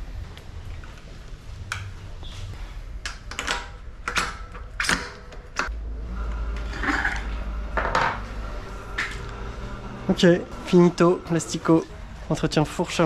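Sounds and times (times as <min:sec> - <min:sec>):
low hum: 0:03.7 - 0:13.0.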